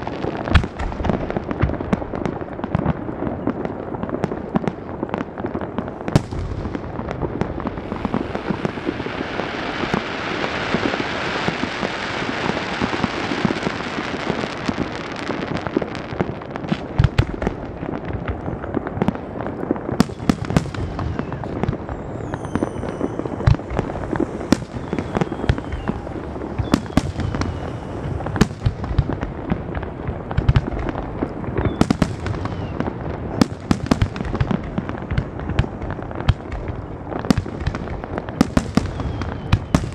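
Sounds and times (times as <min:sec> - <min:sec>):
fireworks bangs: 0:00.0 - 0:39.9
fireworks crackling: 0:00.0 - 0:39.9
falling firework whistles: 0:07.6 - 0:15.4, 0:20.0 - 0:29.3, 0:30.4 - 0:34.4, 0:38.4 - 0:39.9.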